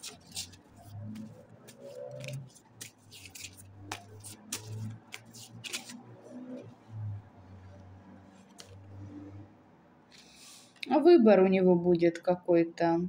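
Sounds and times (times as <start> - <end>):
cards being shuffled: 0.0 - 6.6, 8.5 - 8.9.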